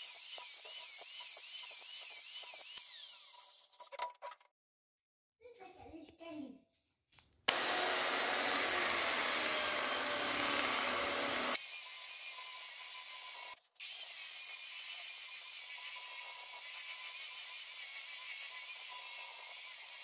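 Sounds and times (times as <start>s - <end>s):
belt sander sanding wood: 7.5s - 11.6s.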